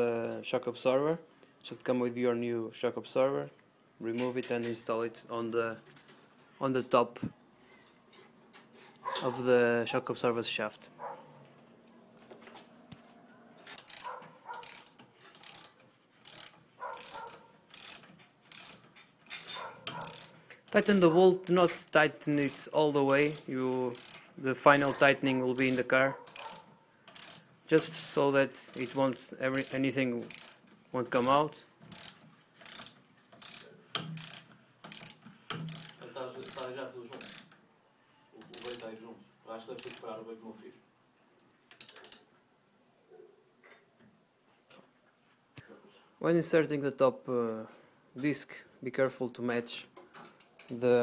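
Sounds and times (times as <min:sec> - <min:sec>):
ratchet wrench clicking: 0:13.8 - 0:21.8, 0:22.4 - 0:25.0, 0:25.6 - 0:37.6, 0:38.5 - 0:38.9, 0:39.8 - 0:40.1, 0:41.7 - 0:42.2.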